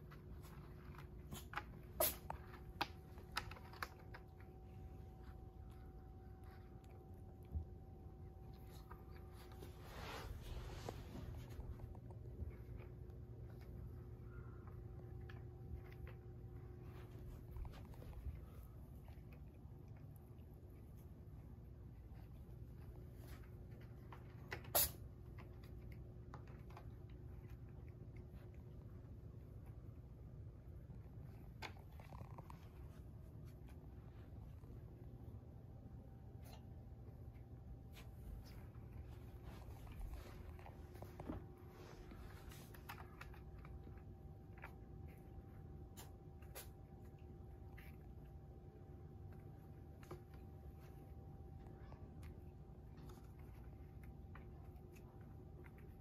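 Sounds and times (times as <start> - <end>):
cats scratching cardboard: 0.0 - 35.2.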